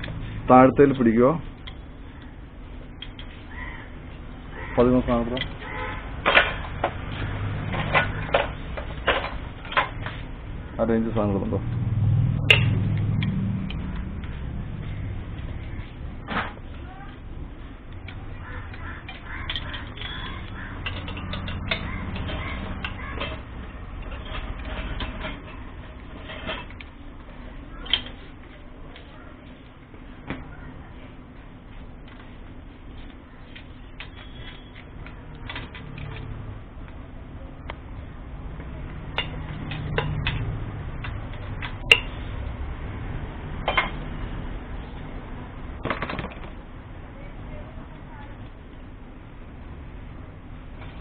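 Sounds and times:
low steady hum: 0.0s - 51.0s
birds calling: 1.6s - 9.0s, 13.7s - 16.3s, 17.9s - 24.8s
metal spanner clinking on bolts: 19.1s - 25.5s.

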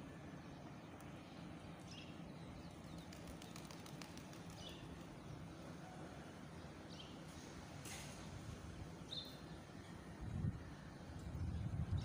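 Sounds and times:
faint outdoor background hum: 0.0s - 12.0s.

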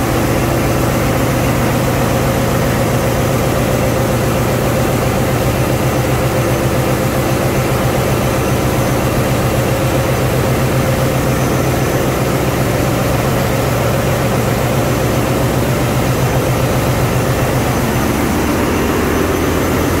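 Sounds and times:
marine diesel engine droning: 0.0s - 20.0s.

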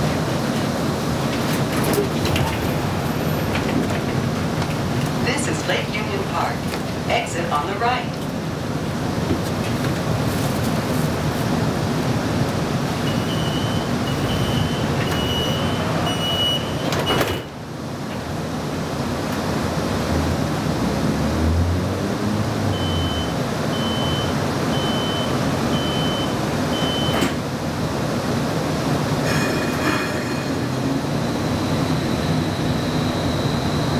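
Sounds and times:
street traffic: 0.0s - 33.9s
streetcar hum: 0.0s - 33.9s
short high door beeps: 13.1s - 17.5s, 22.8s - 27.4s.

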